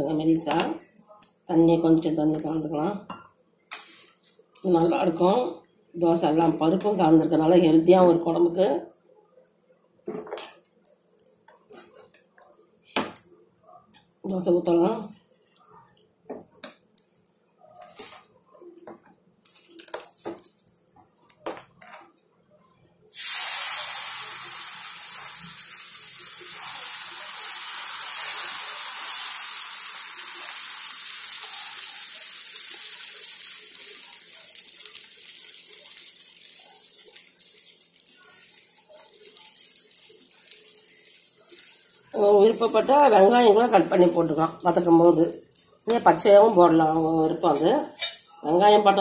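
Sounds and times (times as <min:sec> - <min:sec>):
batter sizzling on hot griddle: 0:23.1 - 0:46.2.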